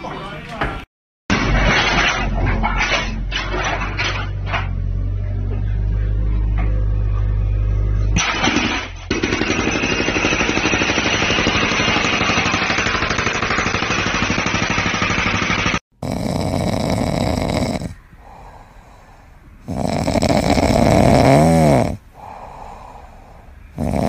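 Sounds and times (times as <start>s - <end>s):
hydraulic breaker hammering concrete: 8.2s - 15.8s.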